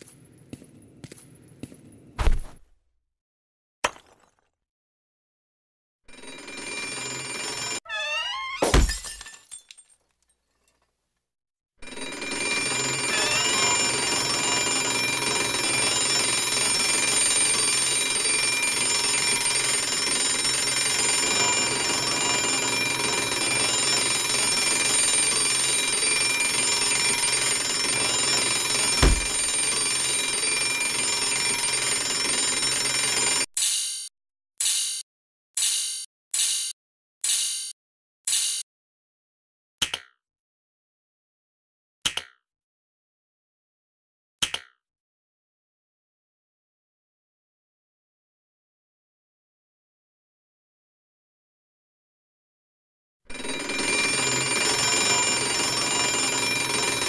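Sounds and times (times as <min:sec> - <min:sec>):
thump: 0:02.2 - 0:02.6, 0:29.0 - 0:29.5
alarm clock bells ringing: 0:12.0 - 0:34.1, 0:53.3 - 0:57.0.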